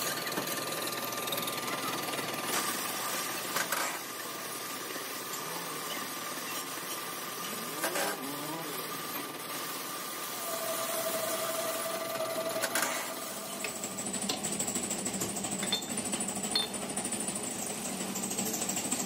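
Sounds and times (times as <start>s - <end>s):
machine whine: 0.0s - 19.0s
workshop machinery humming: 0.0s - 19.0s
metal clinks: 15.6s - 16.8s.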